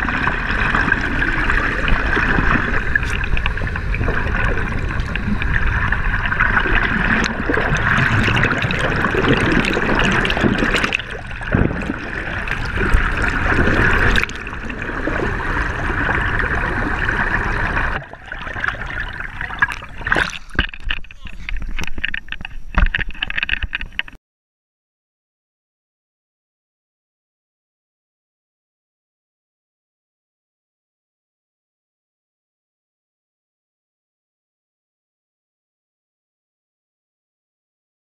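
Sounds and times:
underwater water gurgling: 0.0s - 24.2s.

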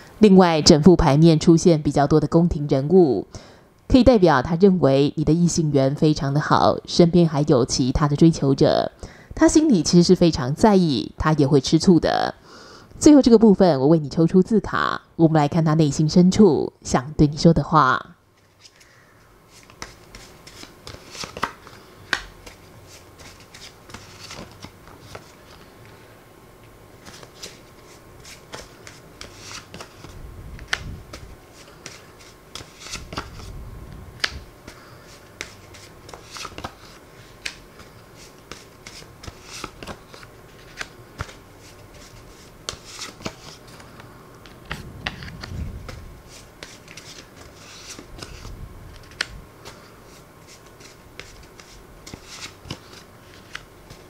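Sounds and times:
paper cards clicking and rustling: 18.4s - 25.7s, 27.0s - 33.5s, 34.2s - 54.0s.

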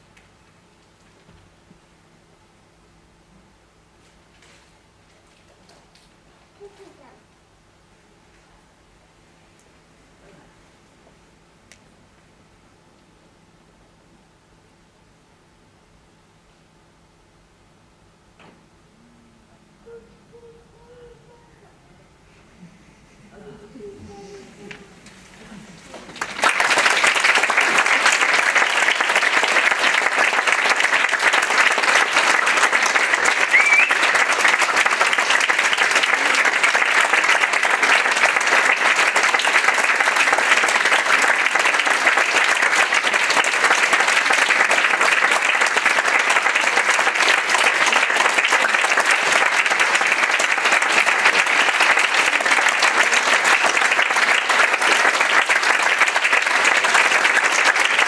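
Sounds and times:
audience applause: 24.6s - 58.0s
rising whistle: 33.5s - 34.1s.

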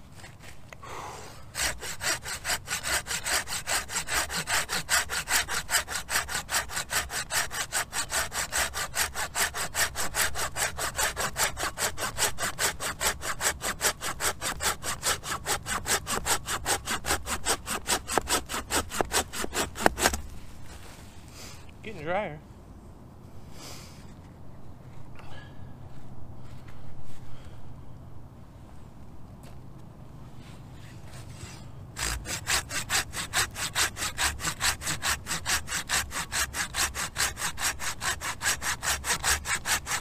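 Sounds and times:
saw cutting through log: 1.5s - 20.4s, 31.1s - 40.0s.

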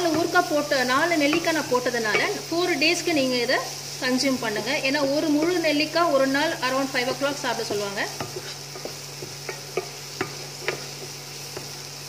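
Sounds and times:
wooden spatula tapping and scraping: 0.0s - 2.5s, 4.3s - 6.0s, 7.0s - 11.8s
faint sizzle: 0.0s - 12.0s.

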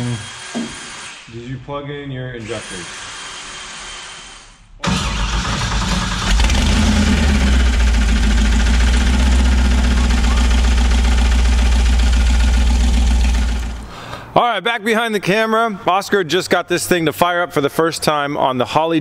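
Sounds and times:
car engine starting and running: 4.8s - 14.0s.

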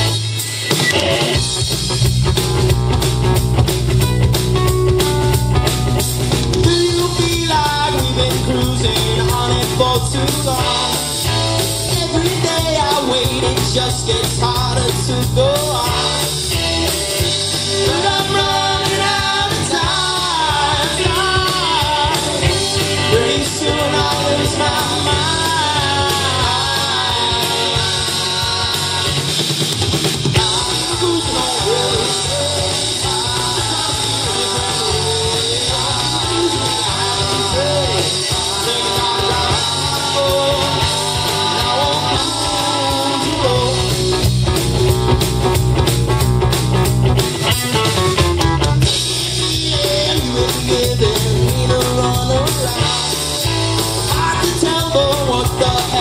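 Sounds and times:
live rock band playing: 0.0s - 56.0s
man singing: 6.4s - 16.4s, 17.6s - 29.6s, 30.3s - 44.3s, 48.8s - 56.0s.

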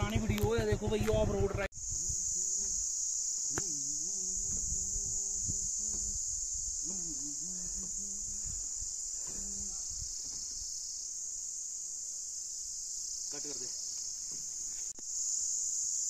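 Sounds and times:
motorcycle engine: 0.0s - 1.7s
high-pitched insect drone: 0.0s - 16.0s.

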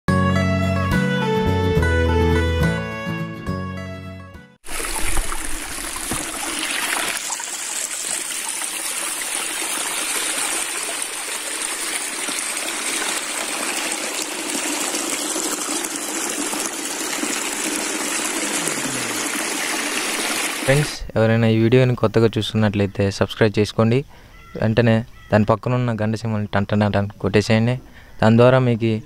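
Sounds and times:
waterfall splashing over rock: 4.6s - 20.9s.

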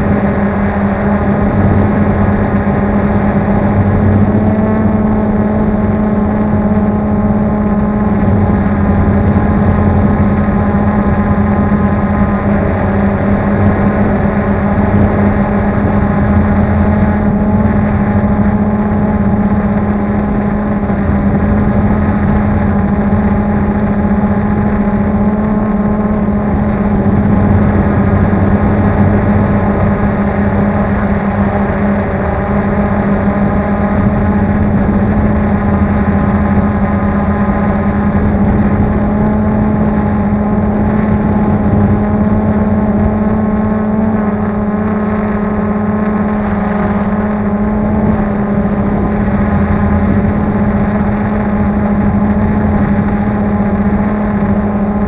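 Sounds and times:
drone motors and propellers humming: 0.0s - 55.0s.

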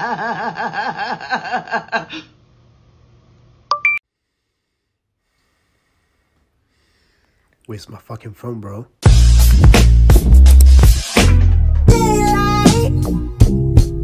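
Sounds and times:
person cackling: 0.0s - 2.4s.

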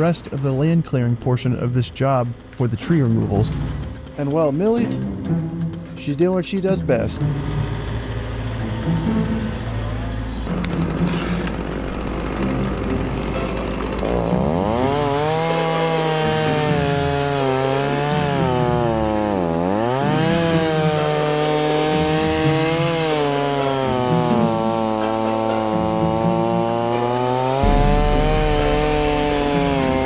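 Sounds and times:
low rough machine noise: 0.0s - 30.0s
chainsaw cutting at high speed: 2.9s - 30.0s.

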